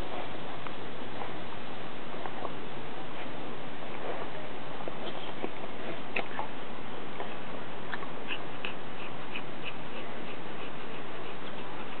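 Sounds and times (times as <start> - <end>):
dog panting: 7.2 - 12.0.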